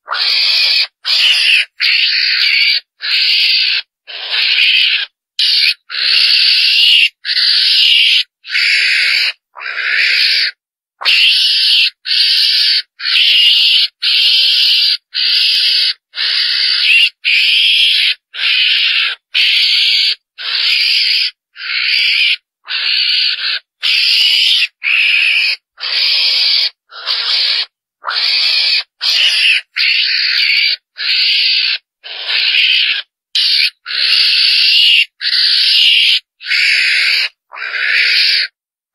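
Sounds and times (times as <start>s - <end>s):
harsh hissy animal call: 0.0s - 38.6s.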